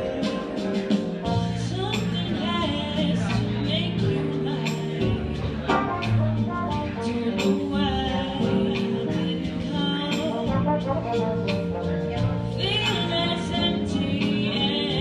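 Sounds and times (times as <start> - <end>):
woman singing into a microphone: 0.0 - 5.7, 6.9 - 10.8, 12.5 - 15.0
light drum beat: 0.0 - 13.5
trombone playing: 5.7 - 8.7, 10.3 - 12.9.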